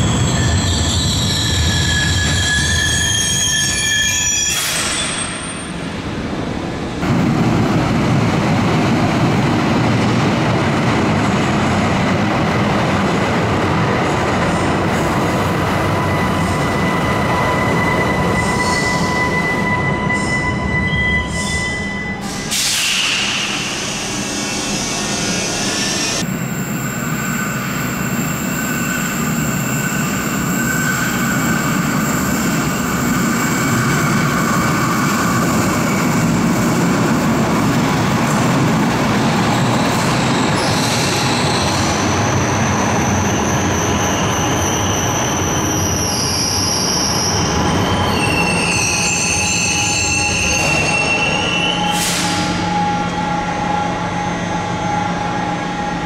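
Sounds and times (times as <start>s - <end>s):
high wheel squeal: 0.0s - 5.9s, 15.8s - 36.2s, 39.4s - 56.0s
train wheels rumbling on rails: 0.0s - 56.0s.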